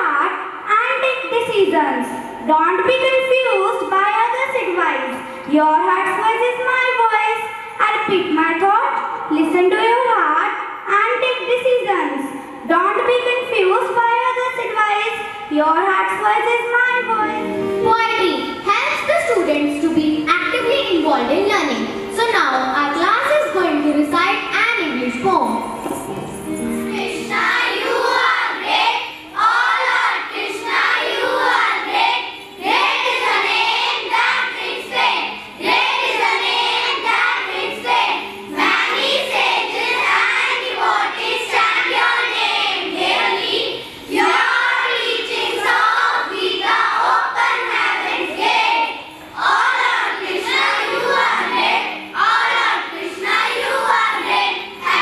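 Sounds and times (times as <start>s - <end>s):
children's chorus through microphones: 26.9s - 55.0s.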